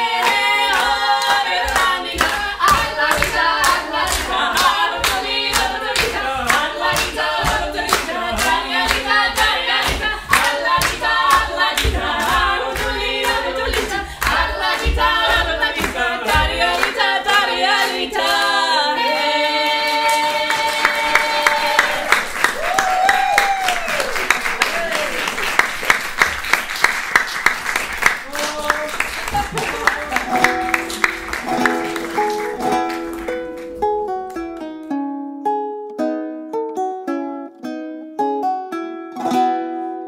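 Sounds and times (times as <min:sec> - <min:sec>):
group singing in harmony: 0:00.0 - 0:22.5
hands clapping a beat: 0:00.0 - 0:34.9.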